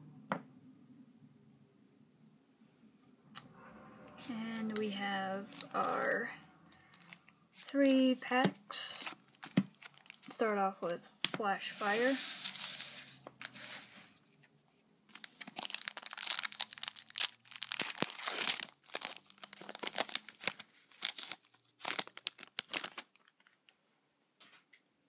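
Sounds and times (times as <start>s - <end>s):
foil wrapper crinkling and tearing: 6.9s - 8.0s, 8.9s - 10.3s, 12.4s - 13.8s, 15.1s - 23.7s.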